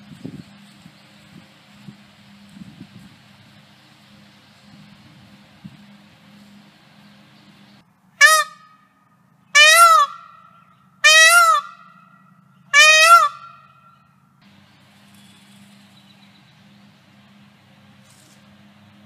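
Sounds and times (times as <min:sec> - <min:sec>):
peacock wailing calls: 0:08.2 - 0:08.9, 0:09.5 - 0:14.1.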